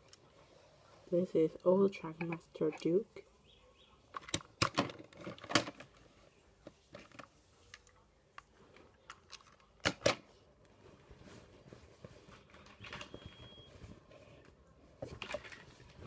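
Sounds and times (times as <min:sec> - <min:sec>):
sharp plastic clacks: 0:04.1 - 0:06.0.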